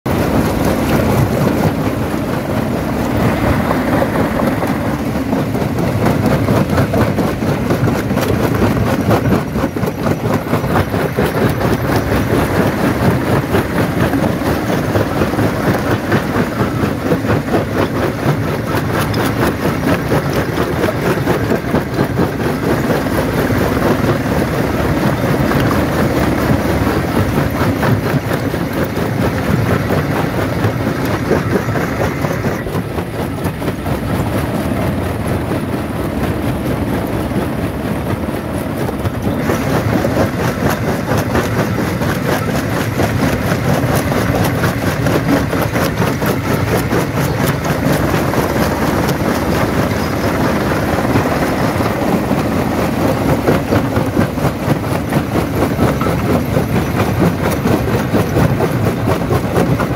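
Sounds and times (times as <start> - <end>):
jaw crusher rumbling: 0.1 - 59.9.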